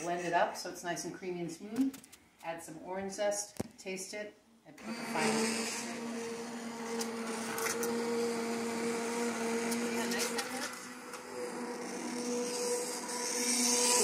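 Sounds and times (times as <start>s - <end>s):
immersion blender motor hum: 4.8s - 14.0s.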